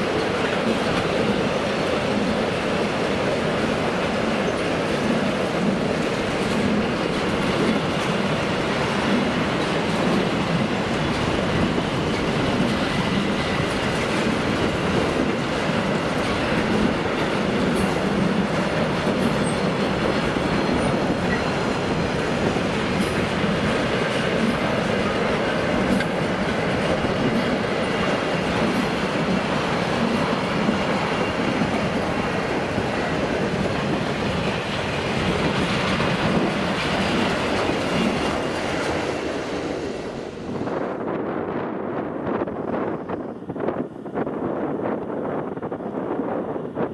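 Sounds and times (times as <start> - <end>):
clickety-clack over rail joints: 0.0 - 46.9
train wheels rumbling on rails: 0.0 - 46.9.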